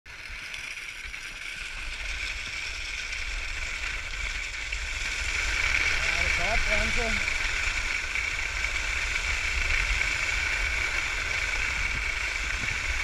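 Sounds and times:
skis scraping over snow: 0.6 - 13.0
wind on microphone: 4.8 - 13.0.

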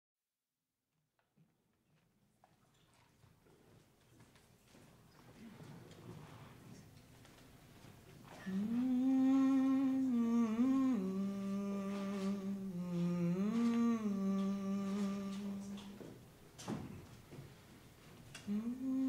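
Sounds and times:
woman humming a slow melody: 8.3 - 16.2, 18.4 - 19.0.

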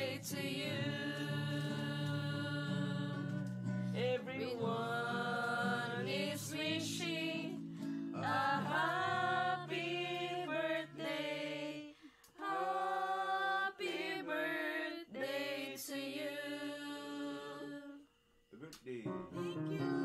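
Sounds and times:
quiet guitar backing track: 0.0 - 11.0, 18.6 - 20.0
group singing together: 0.0 - 18.2, 19.4 - 20.0.

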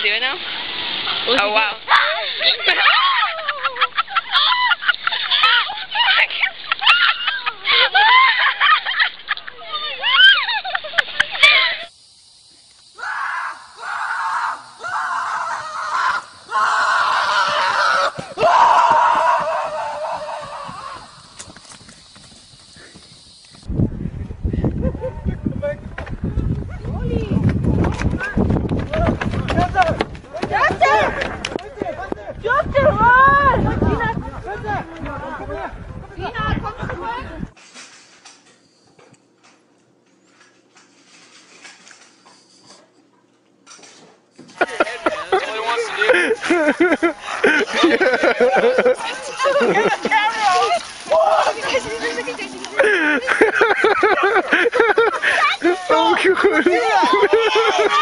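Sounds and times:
high-pitched screaming cries: 1.9 - 8.8, 9.8 - 10.7, 11.3 - 11.9, 12.9 - 21.5.

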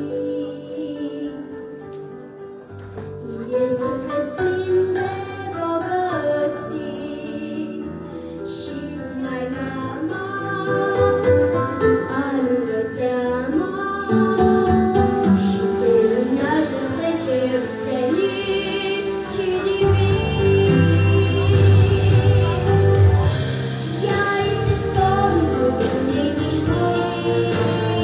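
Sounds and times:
girl singing into microphone: 0.0 - 2.2, 2.9 - 22.8, 23.9 - 28.0
instrumental accompaniment: 0.0 - 28.0.

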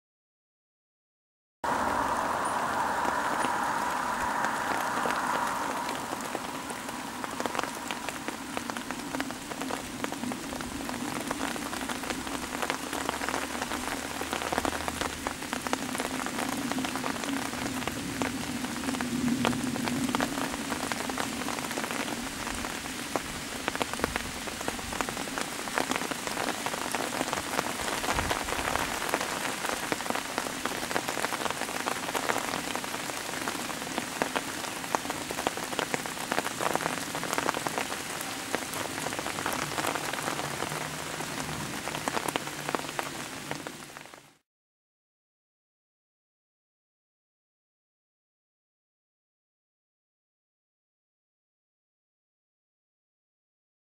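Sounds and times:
rain falling on leaves: 1.6 - 44.4
raindrops ticking: 1.7 - 44.3.

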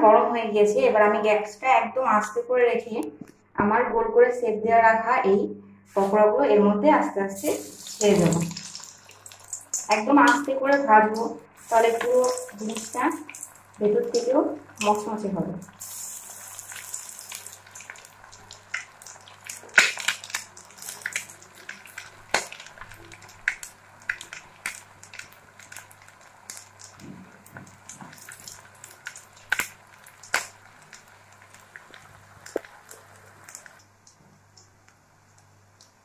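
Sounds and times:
oil sizzling while deep-frying: 7.4 - 34.7
crackles and pops of frying: 7.4 - 36.0.

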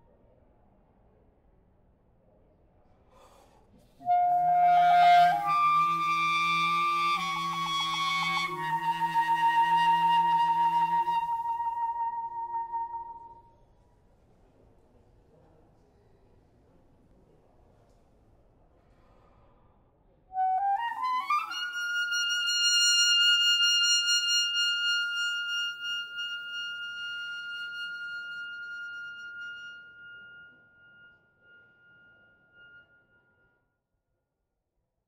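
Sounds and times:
solo clarinet: 4.0 - 13.4, 20.4 - 33.2.

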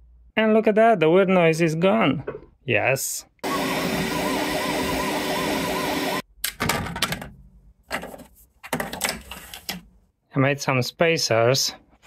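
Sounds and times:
printer fans and stepper motors: 3.4 - 6.2
clicks and knocks of parts: 6.4 - 9.9.

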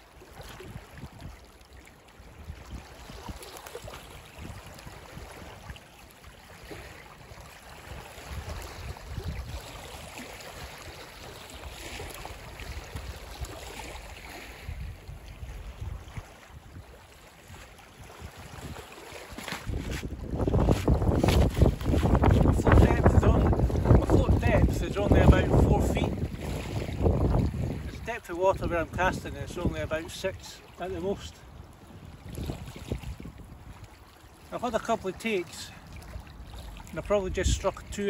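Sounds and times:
waves lapping on shingle: 0.0 - 38.0
wind buffeting microphone: 2.4 - 5.6, 7.9 - 10.1, 14.6 - 16.9, 17.5 - 30.4, 31.0 - 34.1.

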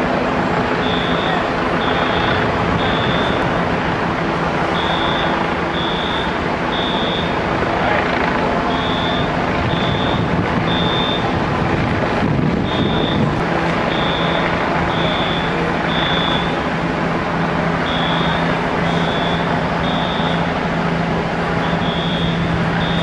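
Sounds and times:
fire engines idling rumble: 0.0 - 23.0
fire alarm high beeps: 0.8 - 3.5, 4.7 - 7.4, 8.7 - 11.3, 12.6 - 13.3, 13.9 - 16.6, 17.8 - 20.5, 21.6 - 23.0.

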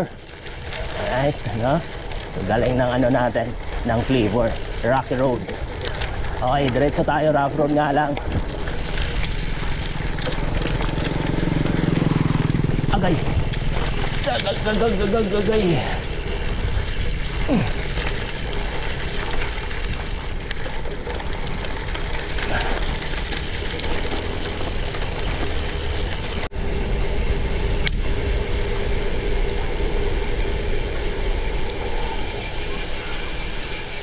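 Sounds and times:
tyres crackling over stones: 0.0 - 26.6
bike rattling: 0.0 - 34.0
heavy low rumble: 26.2 - 33.2.

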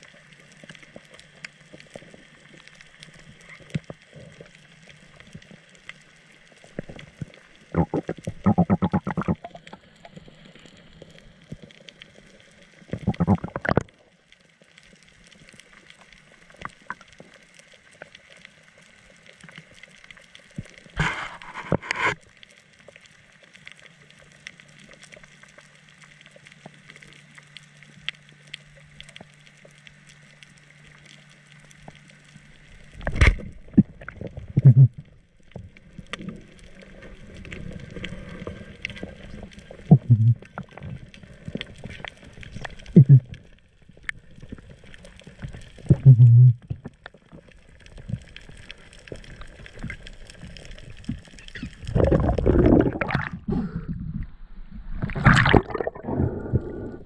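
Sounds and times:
muffled underwater noise: 0.1 - 14.1, 20.6 - 22.3, 28.2 - 57.0
water rushing and bumping: 51.9 - 53.5, 54.9 - 56.6.

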